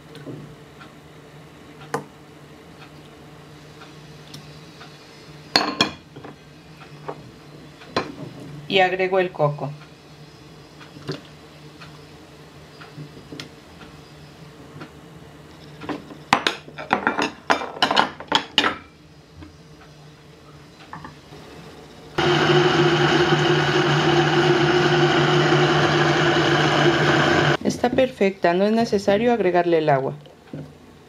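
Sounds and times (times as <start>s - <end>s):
blender motor running: 22.2s - 27.6s.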